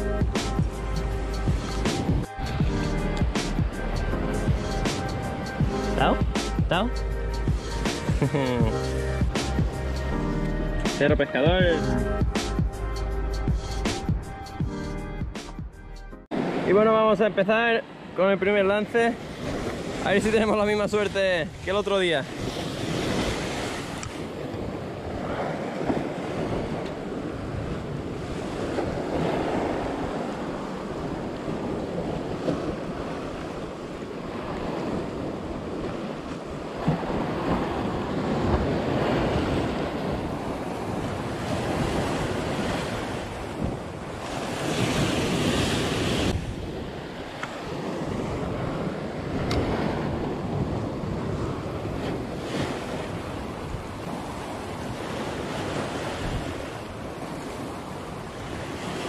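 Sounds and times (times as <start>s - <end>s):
waves breaking on rocks: 16.3s - 59.0s
wind buffeting microphone: 19.2s - 59.0s.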